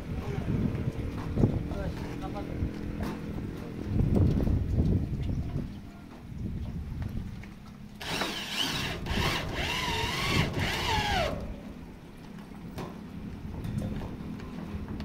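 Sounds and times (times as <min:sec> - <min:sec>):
power drill driving screw into metal: 0:08.0 - 0:11.4.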